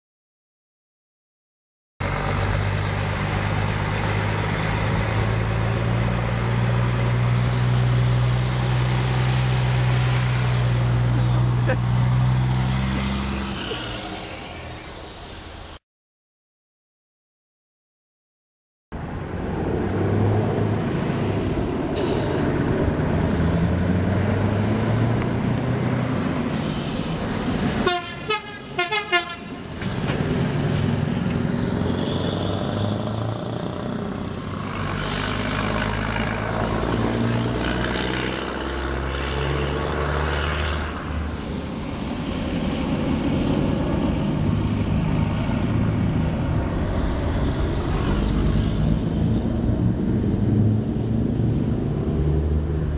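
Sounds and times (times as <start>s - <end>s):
trucks roaring past: 2.0s - 15.8s, 19.0s - 52.9s
truck air horn: 27.8s - 29.7s.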